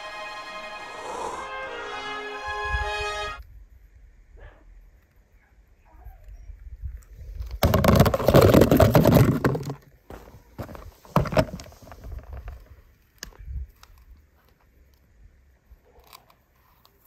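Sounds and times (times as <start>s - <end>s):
small scrapes and taps in sand: 15.9s - 17.0s.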